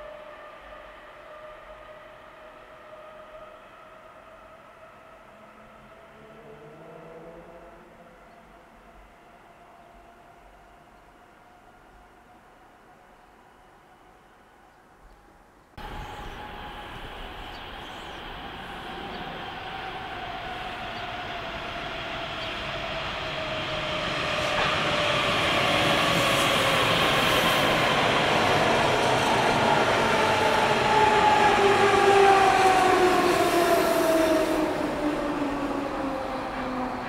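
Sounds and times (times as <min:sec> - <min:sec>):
traction motor whine: 0:15.8 - 0:20.8
train wheels rumbling on rails: 0:15.8 - 0:37.0.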